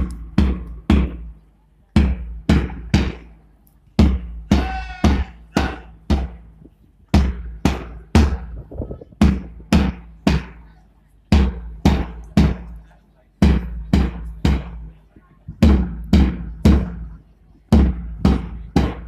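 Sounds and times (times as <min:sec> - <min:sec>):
drum marching beat: 0:00.0 - 0:01.3, 0:02.0 - 0:03.3, 0:04.0 - 0:06.5, 0:07.1 - 0:10.6, 0:11.3 - 0:12.7, 0:13.4 - 0:14.9, 0:15.6 - 0:17.1, 0:17.7 - 0:19.0.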